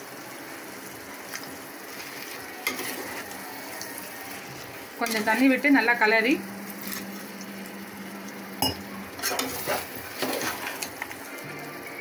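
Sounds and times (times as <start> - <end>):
spoon scraping metal pot: 8.6 - 10.9.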